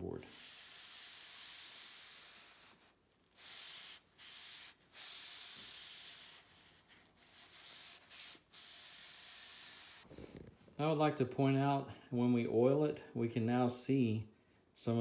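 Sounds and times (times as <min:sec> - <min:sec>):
paper towel rubbing wood: 0:00.0 - 0:10.5.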